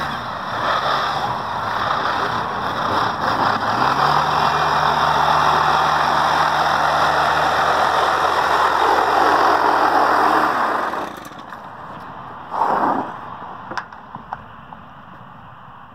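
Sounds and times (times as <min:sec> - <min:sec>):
small two-stroke engine running: 0:00.0 - 0:11.7.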